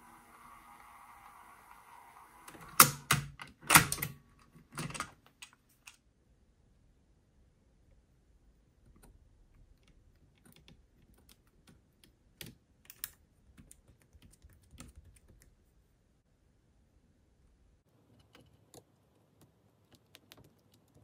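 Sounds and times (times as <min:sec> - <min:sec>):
small clicks and taps: 0:08.9 - 0:15.6, 0:18.1 - 0:21.0.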